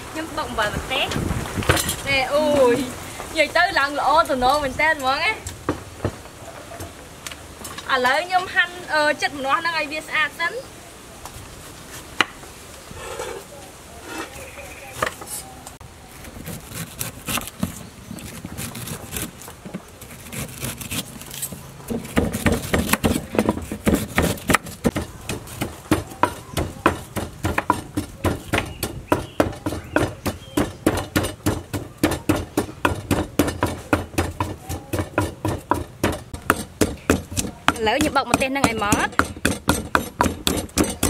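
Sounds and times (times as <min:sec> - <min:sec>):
wooden pestle pounding in mortar: 0:21.9 - 0:41.0.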